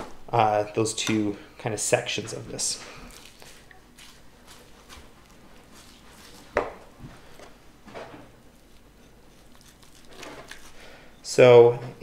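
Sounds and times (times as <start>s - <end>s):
knife cutting meat: 8.6s - 10.8s.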